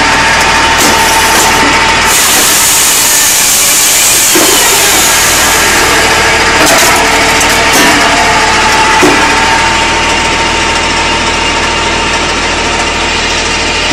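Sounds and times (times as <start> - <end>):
circular saw cutting log: 0.0 - 11.0
machine humming: 0.0 - 13.9.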